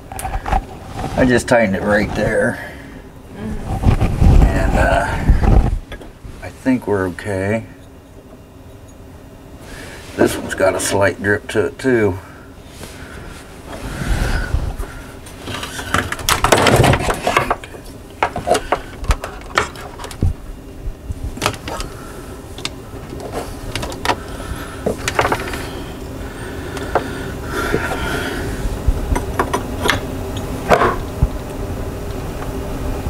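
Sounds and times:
scraping rustle: 0.3 - 2.6.

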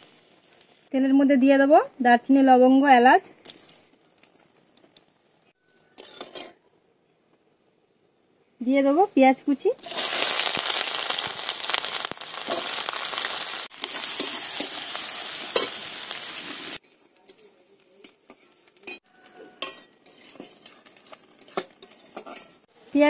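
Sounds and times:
onion sizzling in oil: 0.0 - 1.5, 9.8 - 23.0
metal spatula scraping pan: 6.0 - 6.6, 18.0 - 22.7.

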